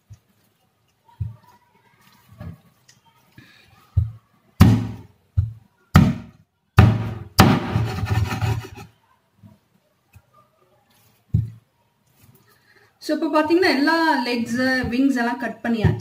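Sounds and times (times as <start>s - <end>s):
cleaver chopping on cutting board: 6.8s - 8.8s.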